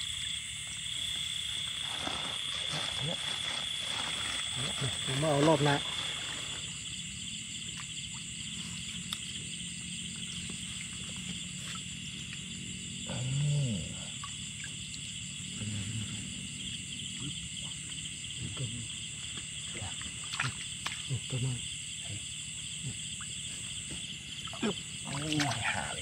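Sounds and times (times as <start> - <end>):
crickets and insects trilling: 0.0 - 26.0
light splashes in shallow water: 19.9 - 21.1, 24.4 - 25.8.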